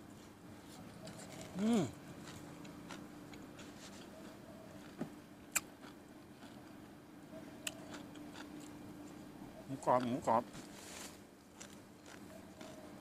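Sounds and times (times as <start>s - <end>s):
faint steady hum: 0.0s - 13.0s
person chewing food: 0.6s - 6.8s, 7.4s - 9.2s, 11.0s - 13.0s.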